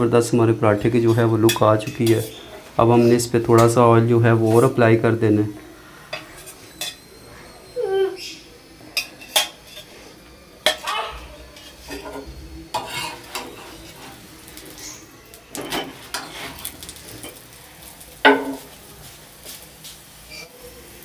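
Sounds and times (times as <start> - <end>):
frying sizzle: 0.0 - 21.0
utensil scraping iron griddle: 0.8 - 4.9, 9.0 - 20.6.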